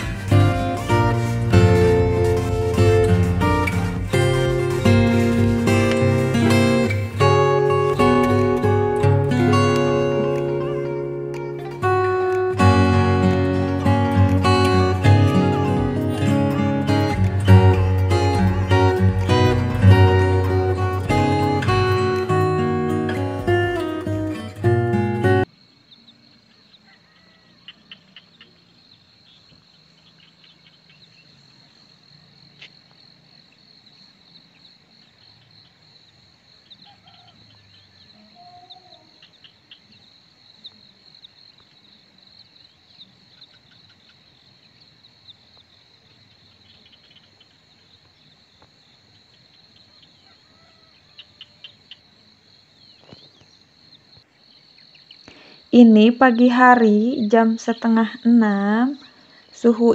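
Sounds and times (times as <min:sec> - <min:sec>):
crickets trilling: 0:00.9 - 0:59.9
faint calls: 0:25.9 - 0:32.8, 0:36.6 - 0:40.0, 0:49.0 - 0:55.8.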